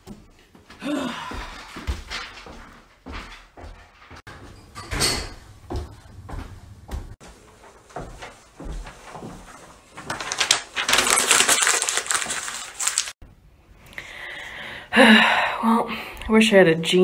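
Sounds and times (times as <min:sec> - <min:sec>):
paper crumpling: 0:08.8 - 0:13.2.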